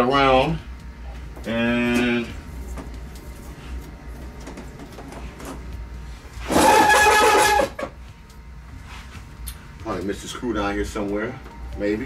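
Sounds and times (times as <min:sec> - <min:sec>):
plastic scraping squeal: 0:06.5 - 0:07.9.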